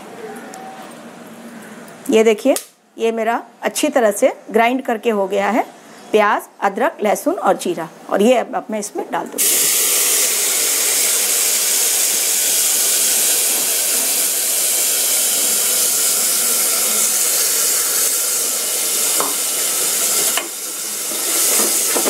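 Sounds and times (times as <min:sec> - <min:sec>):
paste sizzling in hot oil: 0:09.4 - 0:22.0.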